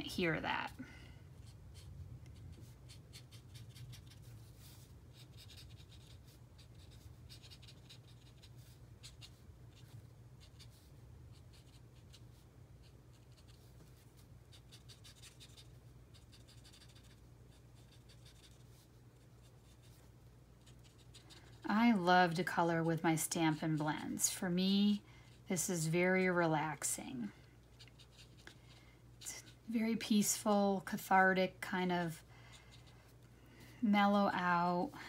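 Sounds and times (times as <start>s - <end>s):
marker scratching on cardstock: 1.4s - 13.7s, 14.5s - 18.8s.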